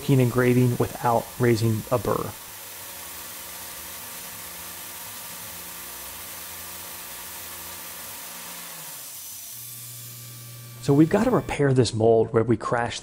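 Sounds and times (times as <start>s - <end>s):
spray nozzle hissing: 0.0s - 8.1s
lower machine hum: 0.0s - 11.9s
spindle hum: 9.5s - 11.8s.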